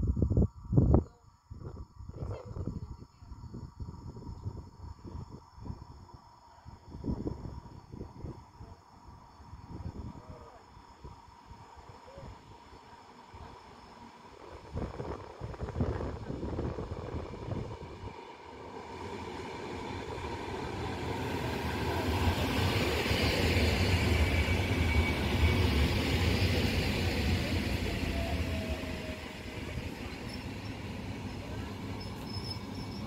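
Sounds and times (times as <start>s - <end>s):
falling whine of train braking: 9.4s - 33.0s
train wheels rumbling: 13.4s - 33.0s.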